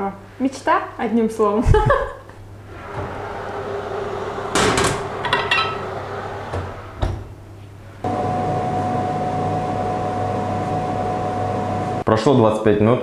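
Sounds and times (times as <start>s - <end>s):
oven door shutting: 2.7s - 7.4s
frying pan clattering on rack: 4.6s - 6.0s.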